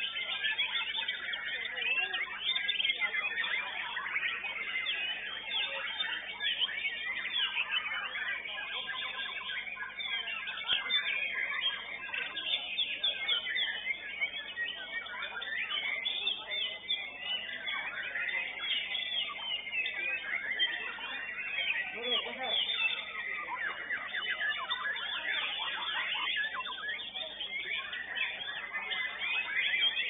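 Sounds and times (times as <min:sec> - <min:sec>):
caged songbirds singing: 0:00.0 - 0:30.0.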